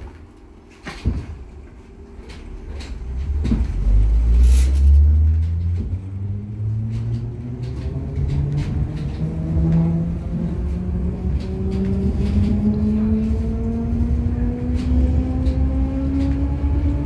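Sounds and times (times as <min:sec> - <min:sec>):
electric train rumble: 0:00.0 - 0:17.0
traction motor whine rising: 0:03.0 - 0:17.0.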